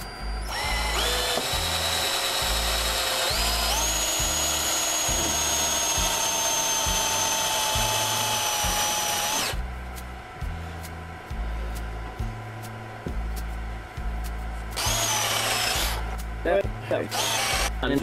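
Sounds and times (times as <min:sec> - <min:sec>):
electric drill whine: 0:00.0 - 0:09.6, 0:14.8 - 0:16.2, 0:17.1 - 0:17.8.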